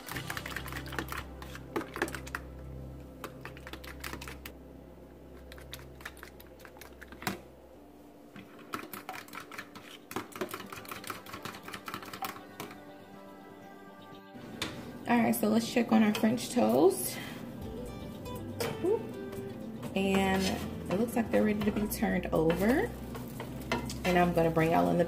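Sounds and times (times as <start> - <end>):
steady low hum: 1.0 - 8.8
fork whisking eggs in a bowl: 8.4 - 12.7.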